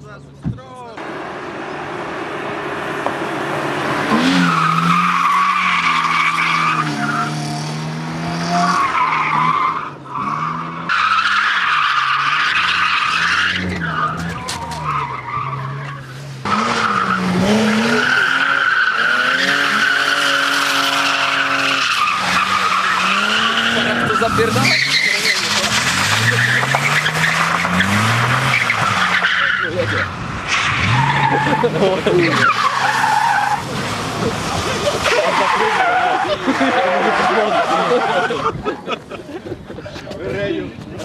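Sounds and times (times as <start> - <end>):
car engines revving: 0.0 - 41.0
tyre squeals: 4.1 - 7.6, 8.7 - 33.7.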